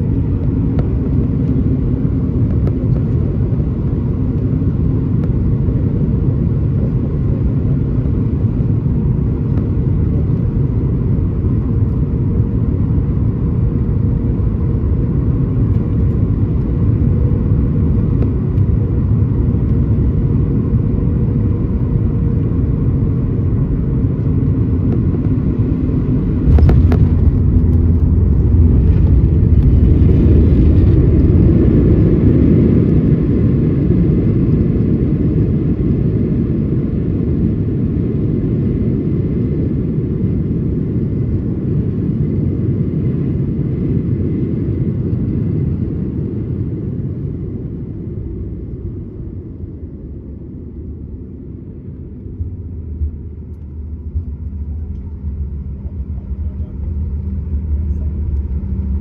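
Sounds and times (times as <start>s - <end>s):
airflow rumble in aircraft cabin: 0.0s - 59.0s
jet engine hum: 0.0s - 59.0s
aircraft wheels touching down: 26.3s - 32.0s.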